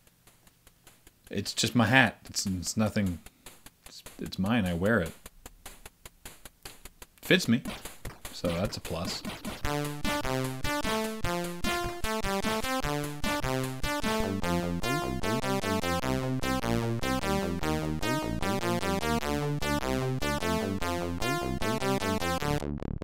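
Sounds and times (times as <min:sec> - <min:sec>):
steady electronic beat: 0:02.3 - 0:23.0
synthesizer melody: 0:07.7 - 0:23.0.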